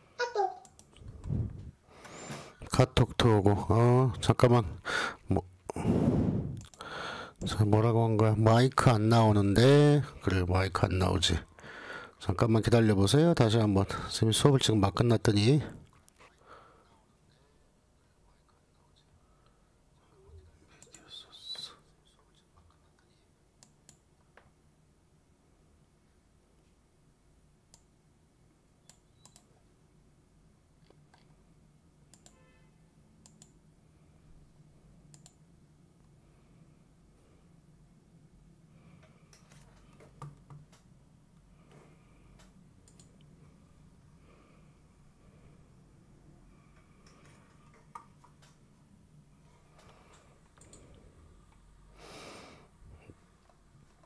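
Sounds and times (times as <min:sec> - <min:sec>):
short breath near microphone: 0:04.8 - 0:07.4, 0:11.6 - 0:12.2, 0:16.4 - 0:17.0
computer mouse clicks: 0:06.6 - 0:06.8, 0:20.8 - 0:21.1, 0:23.6 - 0:24.1, 0:28.8 - 0:29.5, 0:32.1 - 0:32.4, 0:33.2 - 0:33.6, 0:35.1 - 0:35.4, 0:42.3 - 0:43.3, 0:50.1 - 0:51.6.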